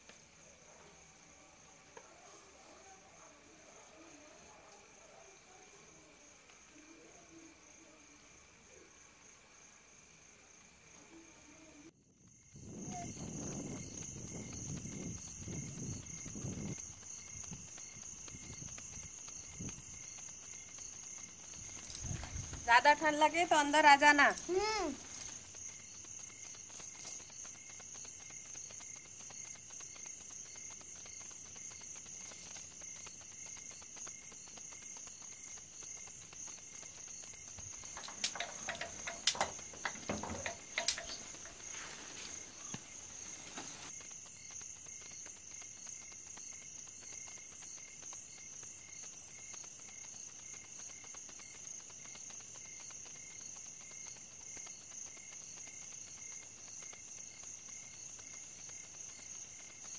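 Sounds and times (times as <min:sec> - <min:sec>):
crickets chirping: 0:00.0 - 0:59.9
clicks and knocks: 0:37.8 - 0:41.7.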